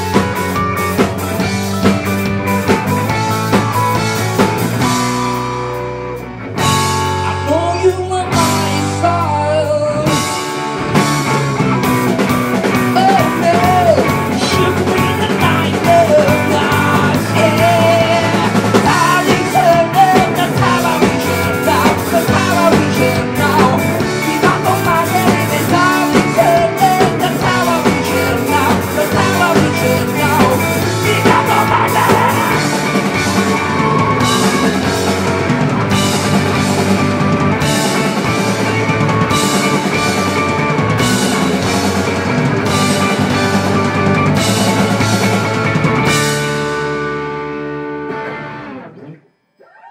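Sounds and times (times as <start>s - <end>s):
drum kit: 0.0s - 48.8s
electric guitars: 0.0s - 49.3s
person singing: 7.4s - 10.4s, 12.9s - 34.9s.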